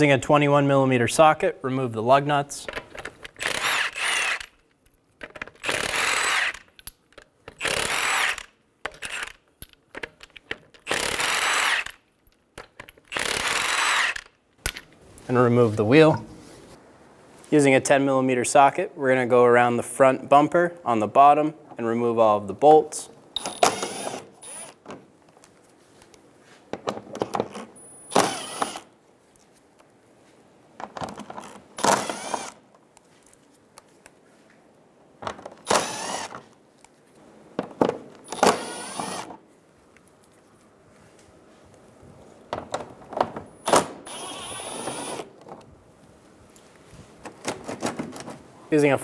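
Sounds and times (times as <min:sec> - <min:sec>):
impact driver whining bursts: 0:03.4 - 0:04.5, 0:05.6 - 0:06.6, 0:07.6 - 0:08.5, 0:23.4 - 0:24.8, 0:28.0 - 0:28.9, 0:31.8 - 0:32.6, 0:35.6 - 0:36.4, 0:38.2 - 0:39.4, 0:43.6 - 0:45.3.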